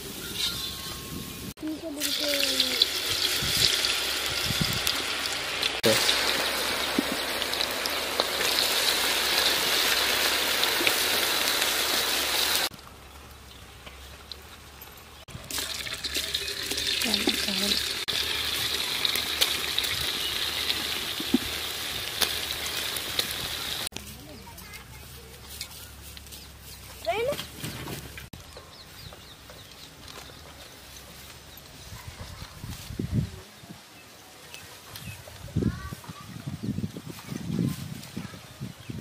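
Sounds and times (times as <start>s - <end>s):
deep-frying in hot oil sizzling: 0.0s - 12.8s, 15.2s - 23.9s.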